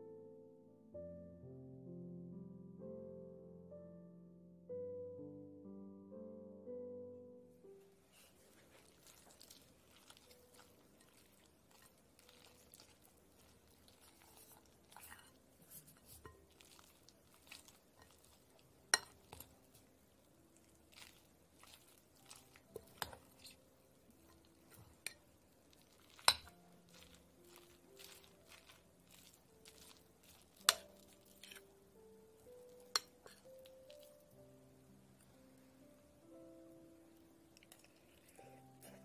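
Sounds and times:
spoon squishing and scraping food: 8.1s - 31.8s, 32.4s - 34.3s, 37.6s - 39.0s
spoon clinking against bowl: 26.2s - 26.6s.

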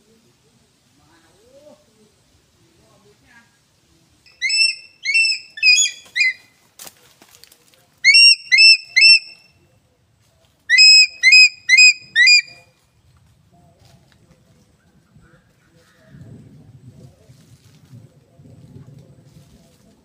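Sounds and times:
eagle whistled calls: 4.3s - 6.4s, 8.0s - 9.5s, 10.7s - 12.6s
brief crackle: 6.0s - 7.9s.

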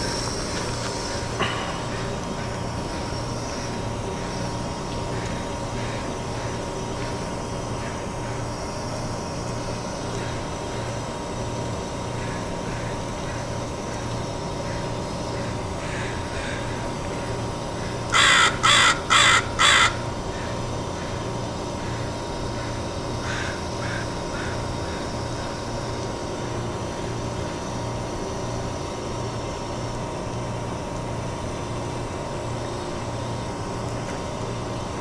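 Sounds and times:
low machinery hum: 0.0s - 35.0s.

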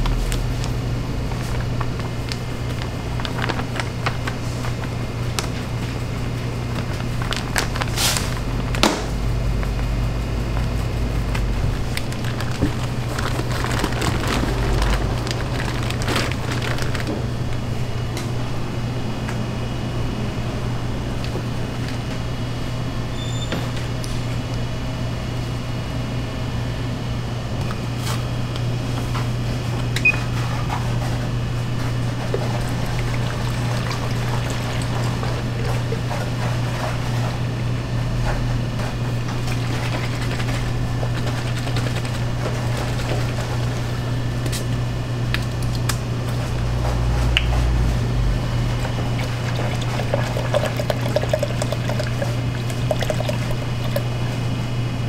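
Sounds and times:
low machine hum: 0.0s - 55.0s
liquid pouring into plastic jug: 31.8s - 36.9s, 48.7s - 54.3s.

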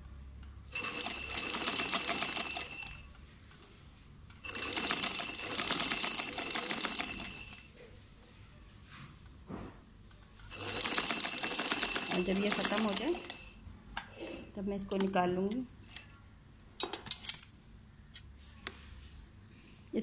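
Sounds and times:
sewing machine stitching: 0.8s - 3.0s, 4.5s - 7.7s, 10.5s - 13.6s.

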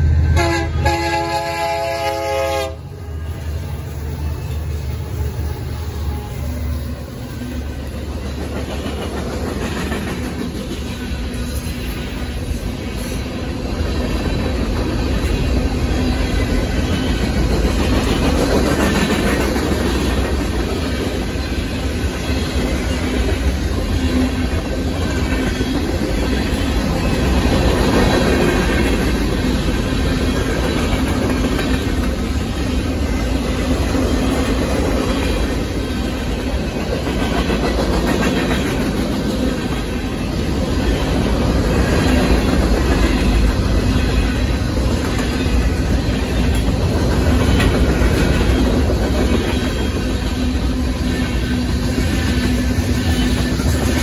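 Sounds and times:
train rumble: 0.0s - 54.0s
locomotive air horn blasts: 0.2s - 3.5s.

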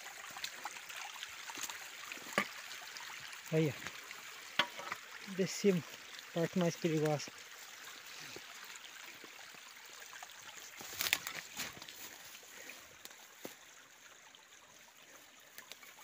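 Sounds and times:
stream trickling: 0.0s - 16.0s
footsteps in wet leaves: 10.6s - 13.6s.

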